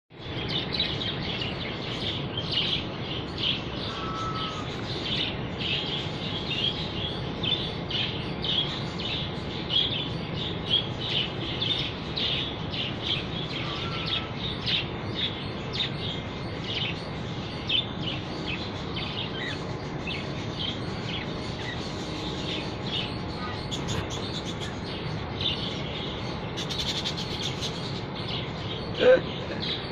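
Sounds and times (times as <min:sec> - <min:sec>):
low background noise: 0:00.1 - 0:29.9
budgerigars chattering: 0:00.5 - 0:06.8, 0:10.7 - 0:29.9.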